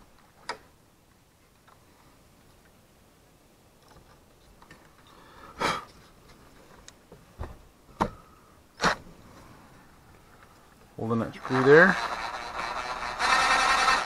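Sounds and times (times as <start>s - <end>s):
cordless driver running: 11.4s - 14.0s.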